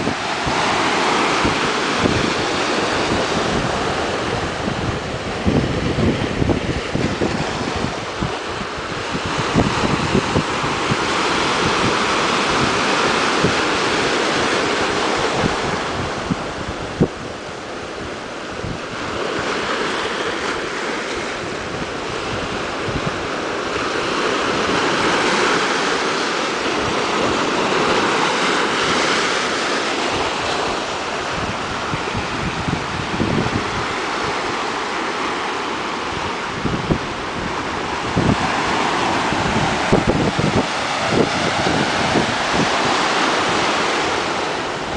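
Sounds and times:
surf breaking over rocks: 0.0 - 44.9
wind buffeting microphone: 0.0 - 44.9.

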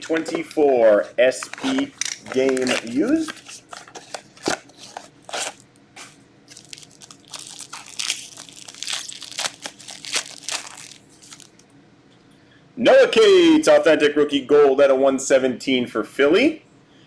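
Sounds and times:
foil pack crinkling and tearing: 1.4 - 11.6.

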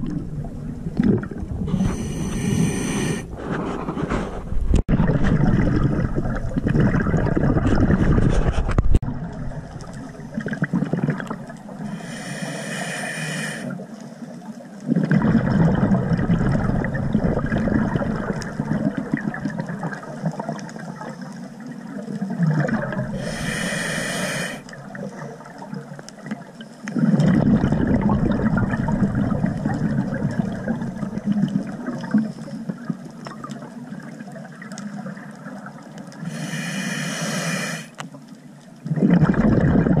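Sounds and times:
exhaled bubbles gurgling: 0.0 - 3.3, 4.8 - 38.1, 38.7 - 40.0
regulator inhalation hiss: 1.8 - 3.3, 11.8 - 13.8, 23.2 - 24.7, 36.2 - 38.0.

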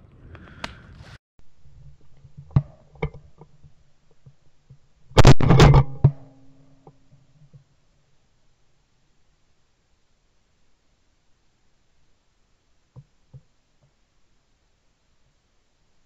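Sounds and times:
sharp gunshot cracks: 5.2 - 6.2.

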